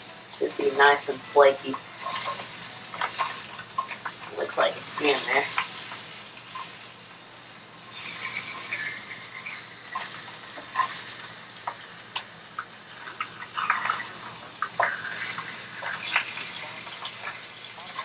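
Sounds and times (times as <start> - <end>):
fish frying in a pan: 0.0 - 18.0
spatula scraping and tapping pan: 11.6 - 18.0.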